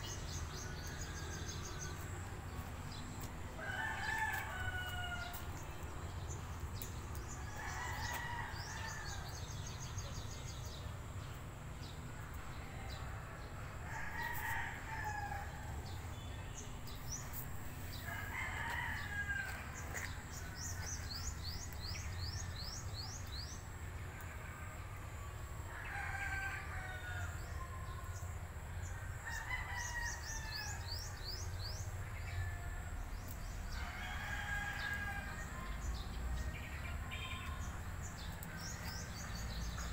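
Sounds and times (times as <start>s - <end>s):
roosters crowing: 3.5s - 5.5s, 7.2s - 9.4s, 12.8s - 16.0s, 17.9s - 21.2s, 25.7s - 27.7s, 29.2s - 31.0s, 33.7s - 36.7s.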